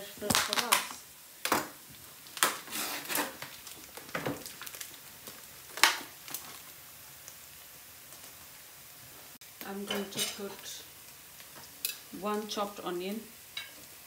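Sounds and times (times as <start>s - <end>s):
plastic wrapper crinkling: 0.2s - 7.4s.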